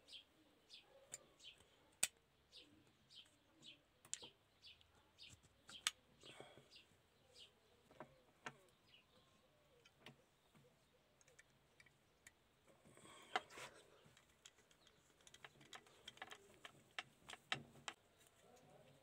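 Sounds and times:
small plastic parts clicking: 4.0 - 4.4, 5.2 - 6.0, 11.2 - 12.5, 13.2 - 18.7.

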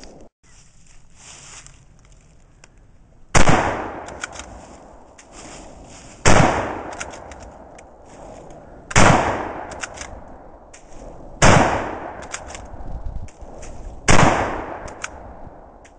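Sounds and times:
rifle shots echoing: 3.3 - 5.0, 6.2 - 7.7, 8.9 - 10.6, 11.4 - 12.8, 14.0 - 15.8
rifle bolt clicking: 4.0 - 4.5, 9.7 - 10.2.

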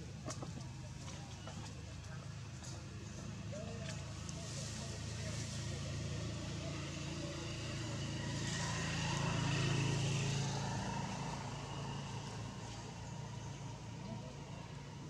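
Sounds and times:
vehicle engine passing: 3.7 - 15.0.

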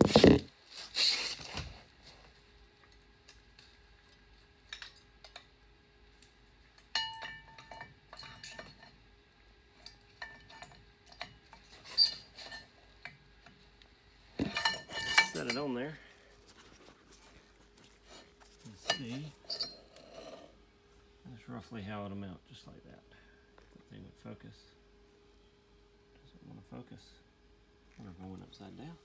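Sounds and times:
metal parts clinking: 14.4 - 15.9
handling rustle: 14.4 - 19.7.

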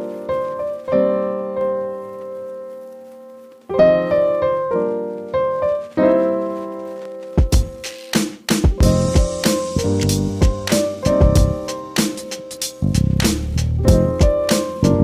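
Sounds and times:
piano chords: 0.0 - 15.0
low drum-like hits: 8.5 - 11.7, 12.8 - 14.5.

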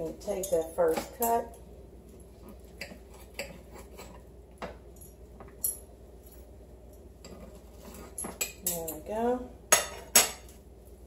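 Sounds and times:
cutlery scraping a china plate: 2.8 - 4.2, 7.2 - 9.0.

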